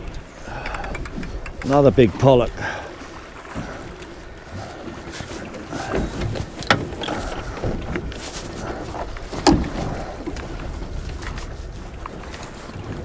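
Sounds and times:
waves washing against boat hull: 0.0s - 13.0s
wind on microphone: 0.0s - 13.0s.

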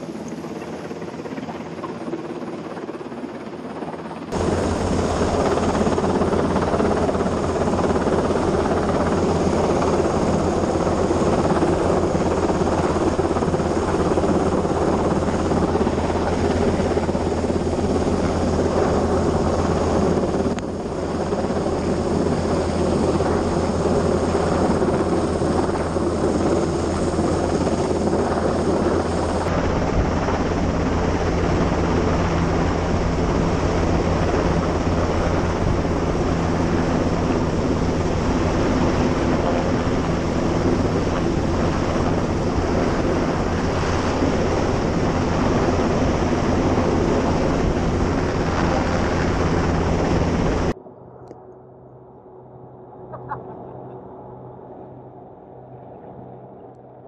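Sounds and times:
rushing wind: 0.0s - 51.2s
helicopter hovering overhead: 0.0s - 57.0s
sea rushing: 4.3s - 50.7s.

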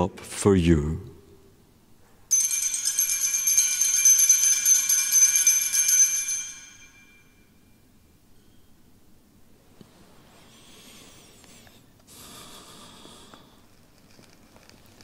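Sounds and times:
small bells jingling: 2.3s - 7.6s.

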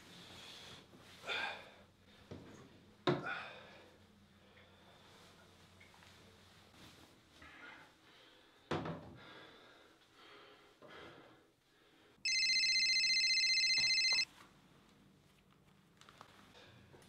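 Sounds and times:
phone ringing with electronic trill: 12.3s - 14.3s.

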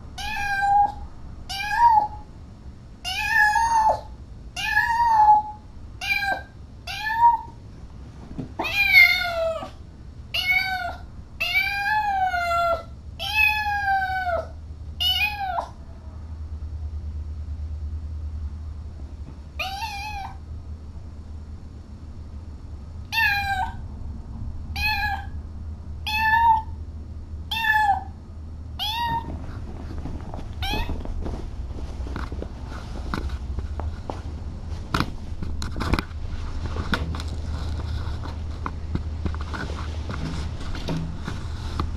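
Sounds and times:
kitten meowing: 0.2s - 2.2s, 3.1s - 7.6s, 8.6s - 15.8s, 19.6s - 20.4s, 23.1s - 23.8s, 24.8s - 25.4s, 26.1s - 26.8s, 27.5s - 28.2s, 28.8s - 29.4s, 30.6s - 31.0s.

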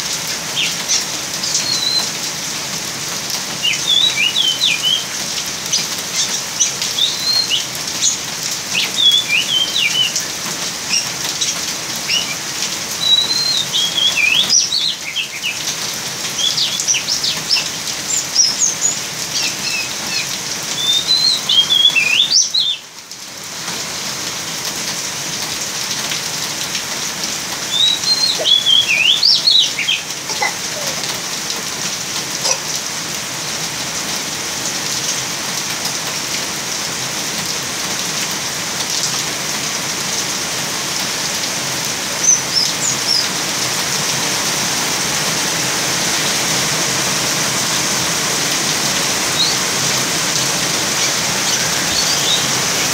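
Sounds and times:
steady rain: 0.0s - 52.9s
bird chirping and twittering: 0.5s - 2.1s, 3.6s - 5.1s, 5.7s - 10.3s, 10.9s - 15.7s, 16.4s - 22.8s, 27.6s - 31.1s, 42.2s - 43.3s, 49.2s - 52.9s.

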